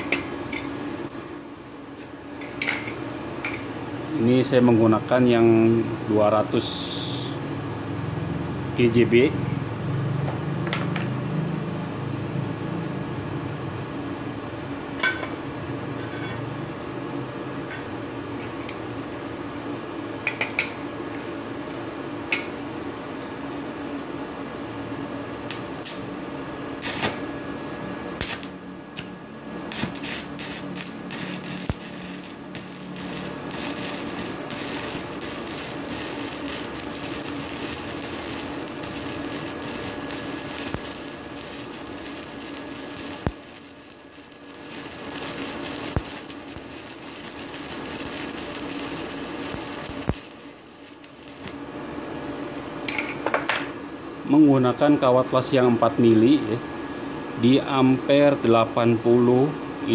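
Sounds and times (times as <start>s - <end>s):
welder low hum: 25.4s - 52.7s
welding arc crackling: 25.5s - 26.1s, 26.8s - 27.3s, 28.1s - 51.7s
welding rod striking ticks: 28.2s - 29.1s, 29.7s - 51.6s.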